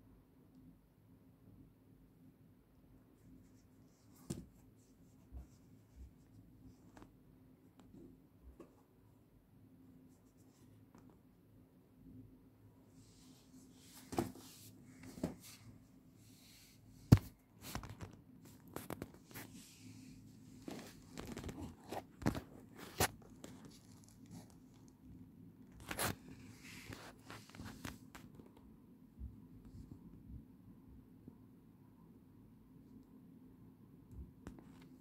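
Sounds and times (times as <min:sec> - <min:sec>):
faint steady hum: 0:00.0 - 0:35.0
sneaker rustling and scraping: 0:13.6 - 0:15.7.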